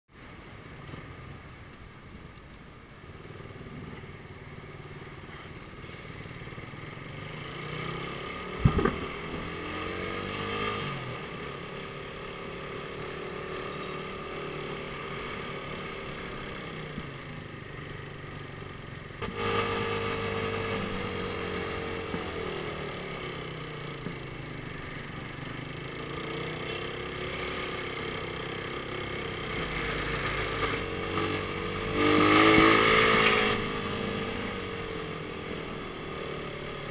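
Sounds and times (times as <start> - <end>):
motorcycle engine in traffic: 0.2 - 36.9.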